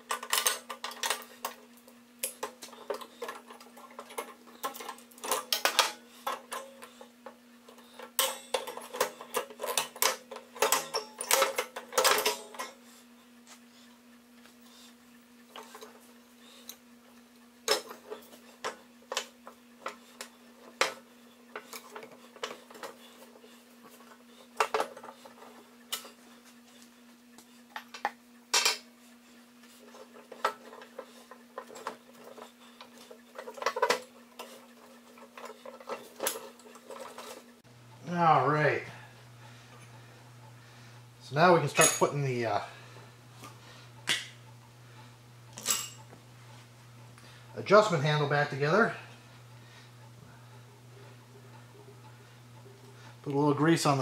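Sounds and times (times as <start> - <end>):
faint steady hum: 0.0 - 54.0
metal parts clinking: 8.0 - 12.8, 45.5 - 46.0.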